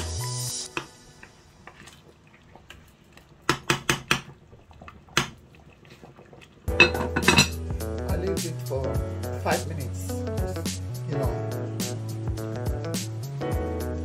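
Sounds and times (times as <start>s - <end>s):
background music: 0.0s - 1.6s, 6.7s - 14.0s
spoon clinking against metal pot: 6.7s - 7.6s.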